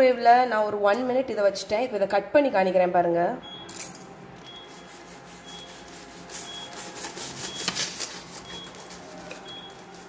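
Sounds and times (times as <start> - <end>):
knife sawing through paper wrapping: 4.8 - 10.0.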